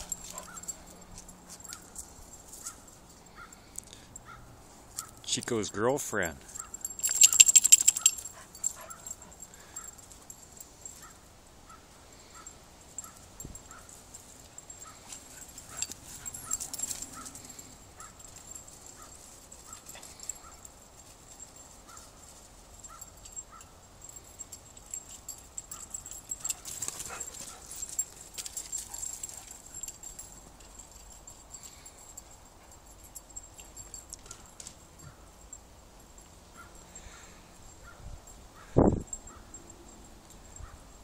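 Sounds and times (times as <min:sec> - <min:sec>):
dogs barking: 0:00.0 - 0:01.9, 0:04.2 - 0:05.2, 0:06.5 - 0:20.7, 0:36.5 - 0:39.6
dogs scuffling: 0:00.0 - 0:03.0, 0:24.8 - 0:31.1.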